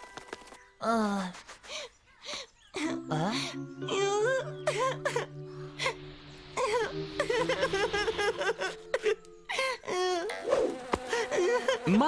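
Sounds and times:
soft background music: 0:02.7 - 0:12.0.

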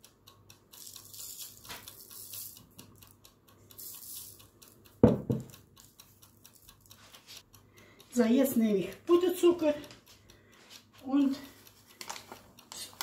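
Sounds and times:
sharp dull knocks: 0:05.0 - 0:05.5.

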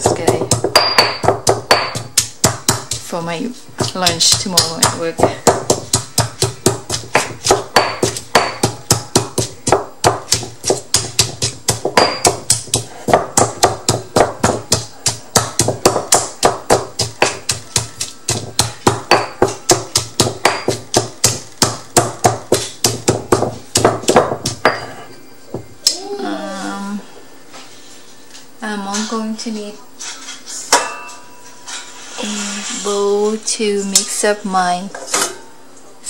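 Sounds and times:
stone pestle pounding in mortar: 0:00.0 - 0:03.2, 0:03.8 - 0:25.7.

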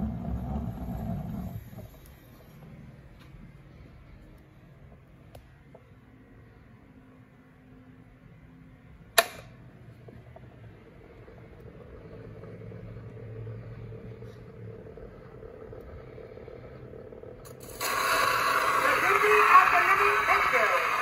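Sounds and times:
sharp click: 0:09.2 - 0:09.5
record surface noise: 0:09.8 - 0:21.0.

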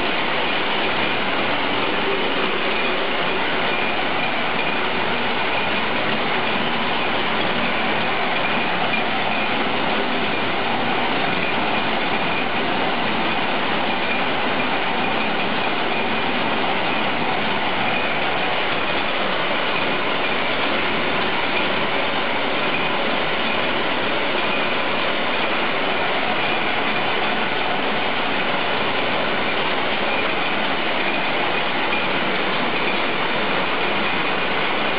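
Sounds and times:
power loom clattering: 0:00.0 - 0:34.9.

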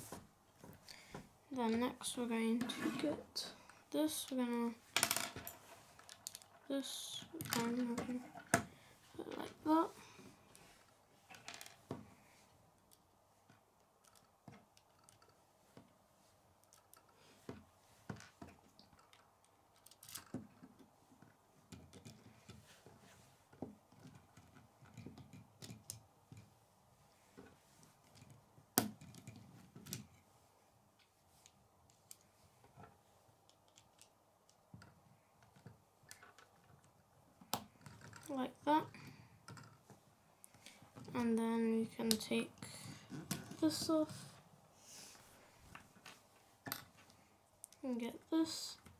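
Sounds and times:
plastic pieces clicking and rattling: 0:05.0 - 0:08.6, 0:14.0 - 0:15.4, 0:18.2 - 0:20.8, 0:33.5 - 0:38.3.

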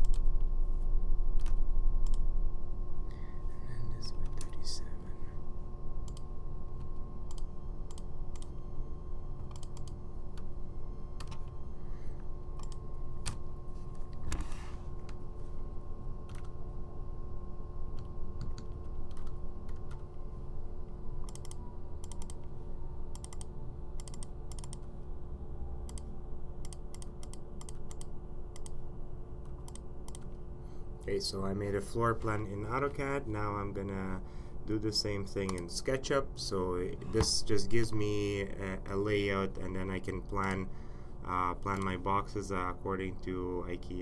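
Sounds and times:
low hum: 0:00.0 - 0:44.0
keyboard typing: 0:09.4 - 0:10.5, 0:11.2 - 0:11.6, 0:12.6 - 0:13.4, 0:16.3 - 0:16.6, 0:18.0 - 0:20.2, 0:21.2 - 0:22.5, 0:23.1 - 0:24.8, 0:29.4 - 0:30.3.

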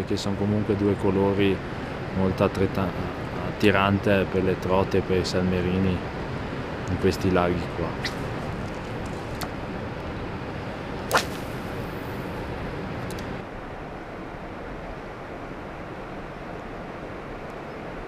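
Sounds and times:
outdoor wind noise: 0:00.0 - 0:18.0
fishing rod swish: 0:08.0 - 0:08.3, 0:11.1 - 0:12.1
line running off reel: 0:11.1 - 0:12.2.

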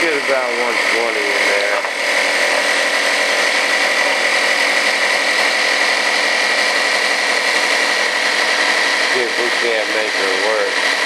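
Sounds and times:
air compressor running: 0:00.0 - 0:11.0.

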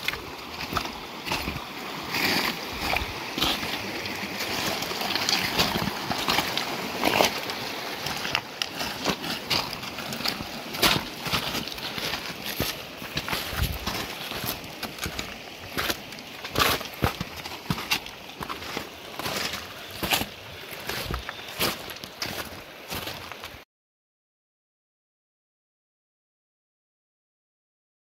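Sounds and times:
boots crunching on loose rock: 0:00.0 - 0:23.6
small stream running: 0:00.0 - 0:23.6
trekking poles tapping stones: 0:02.2 - 0:22.6.

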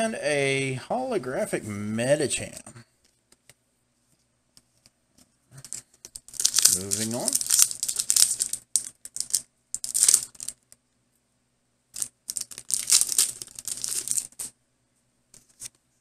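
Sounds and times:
foil wrapper crinkling and tearing: 0:06.2 - 0:10.6, 0:12.0 - 0:14.5.

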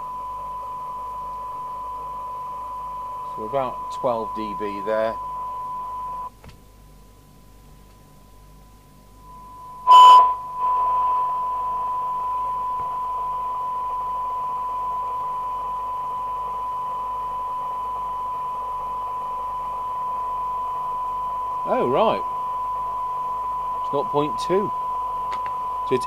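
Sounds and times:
steady test tone from radio: 0:00.0 - 0:06.3, 0:09.1 - 0:26.0
radio hiss: 0:03.3 - 0:06.2, 0:23.8 - 0:24.8.

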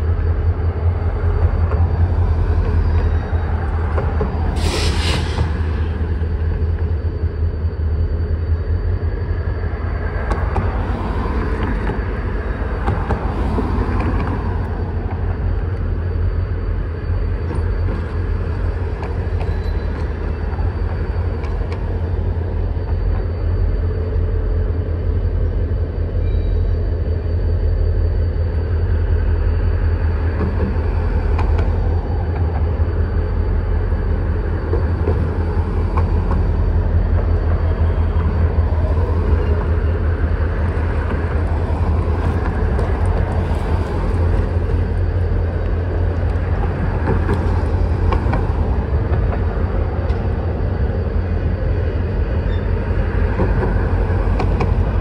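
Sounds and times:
diesel locomotive rumbling: 0:00.0 - 0:55.0.

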